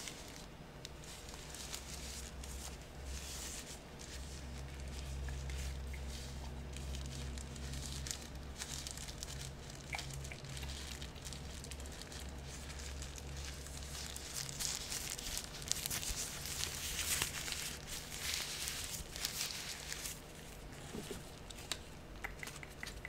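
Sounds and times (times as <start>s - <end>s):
faint low hum: 0.0s - 23.0s
soft plastic crinkling: 0.0s - 23.0s.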